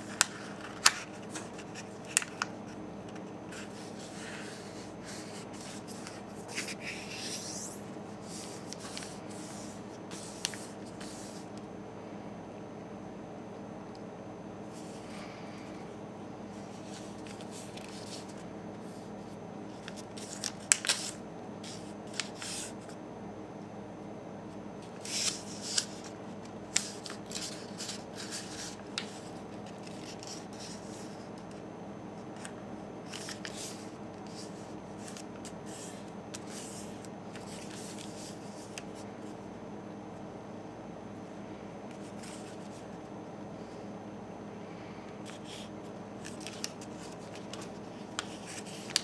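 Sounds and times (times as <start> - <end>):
paper rustling and crinkling: 0.0 - 11.4, 16.6 - 19.1, 19.7 - 22.9, 24.9 - 31.5, 32.4 - 39.0, 45.3 - 49.0
steady low hum: 0.0 - 49.0.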